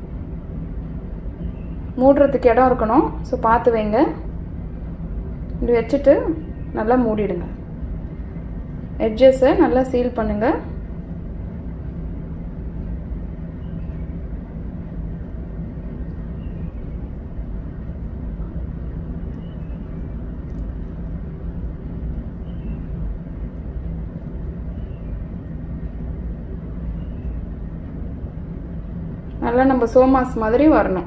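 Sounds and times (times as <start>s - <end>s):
low mechanical hum: 0.0s - 31.0s.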